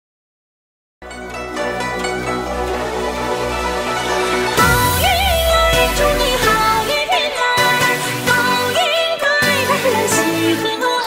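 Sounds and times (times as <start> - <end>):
pop music: 1.7 - 11.0
person singing: 4.5 - 11.0.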